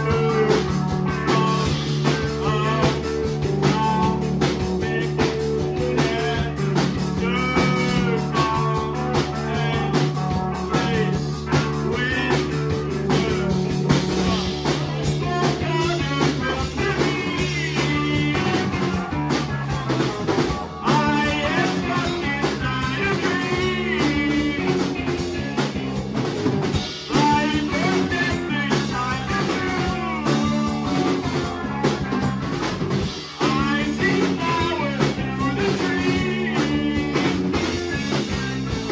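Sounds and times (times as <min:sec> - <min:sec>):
man singing lead vocals: 0:00.0 - 0:38.9
rock band playing live: 0:00.0 - 0:38.9.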